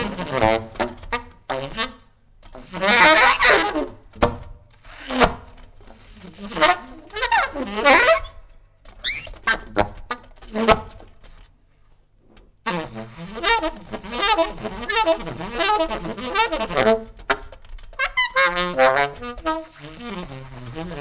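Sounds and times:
tenor saxophone playing jazz: 0:00.0 - 0:04.0, 0:04.9 - 0:08.4, 0:12.6 - 0:21.0.

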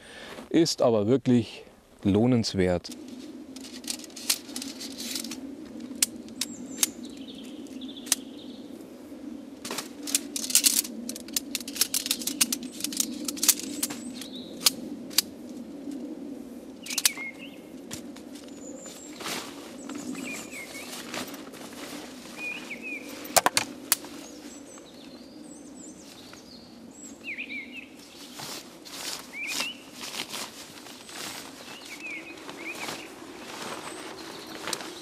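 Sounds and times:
birds chirping: 0:01.5 - 0:14.9, 0:16.7 - 0:35.0
handling rustle: 0:02.8 - 0:08.2, 0:09.6 - 0:16.1, 0:16.9 - 0:24.8, 0:28.0 - 0:35.0
tent pole sections clicking: 0:02.9 - 0:08.2, 0:09.6 - 0:16.1, 0:16.8 - 0:19.1, 0:23.1 - 0:24.1.

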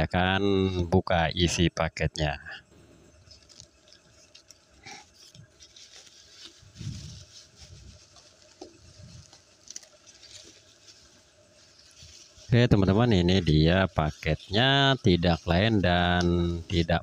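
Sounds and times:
bubble wrap crinkling: 0:03.2 - 0:17.0
cardboard parcel rustling: 0:03.3 - 0:12.6.

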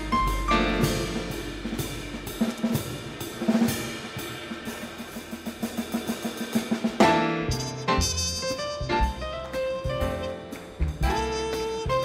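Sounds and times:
jazz band playing: 0:00.0 - 0:12.0
snare drum hits: 0:06.6 - 0:12.0.

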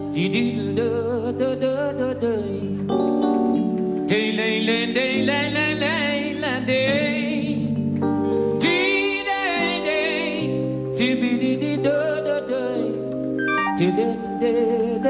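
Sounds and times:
sustained instrumental chords: 0:13.0 - 0:15.0.

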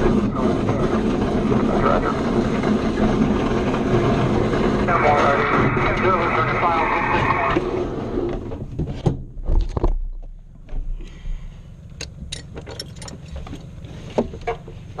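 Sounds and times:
glider rolling rushing noise: 0:00.0 - 0:08.6
canopy rattling clicks and knocks: 0:11.9 - 0:15.0.

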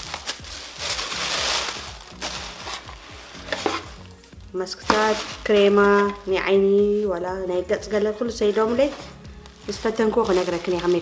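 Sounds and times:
plastic and paper rustling: 0:00.0 - 0:04.1, 0:04.8 - 0:06.5, 0:08.4 - 0:11.0.

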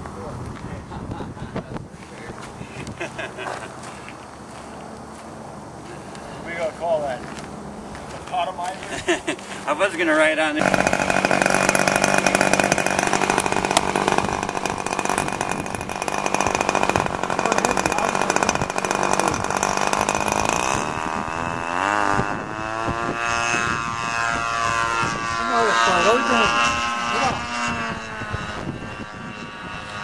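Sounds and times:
model airplane engine running: 0:10.6 - 0:30.0.

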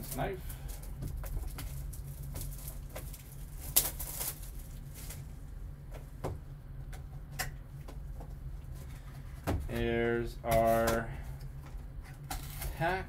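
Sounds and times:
plastic wrap crinkling: 0:00.0 - 0:05.3
steady low hum: 0:00.0 - 0:13.0
sharp crackle: 0:01.4 - 0:05.2.

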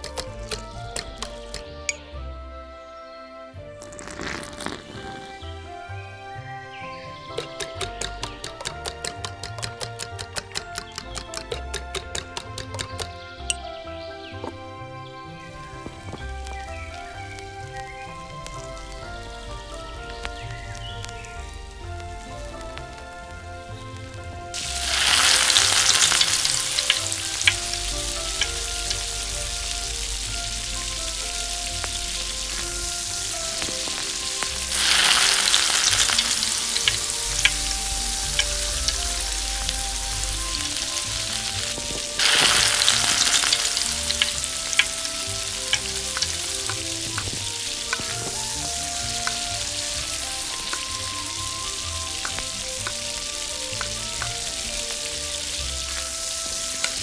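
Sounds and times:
food sizzling in hot oil: 0:03.8 - 0:05.4, 0:15.4 - 0:57.0.

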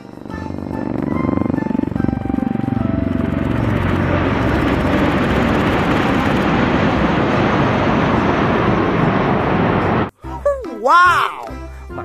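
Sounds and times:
aircraft flying low past: 0:00.0 - 0:10.1.

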